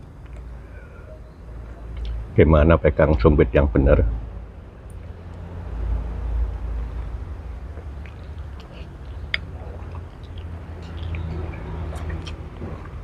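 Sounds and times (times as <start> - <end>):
slurping and chewing: 7.7 - 13.0.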